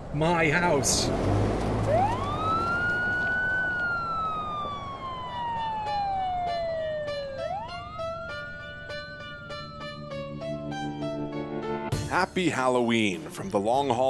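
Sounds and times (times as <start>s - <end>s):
police siren wailing: 0.9s - 11.1s
plucked-string music: 6.3s - 14.0s.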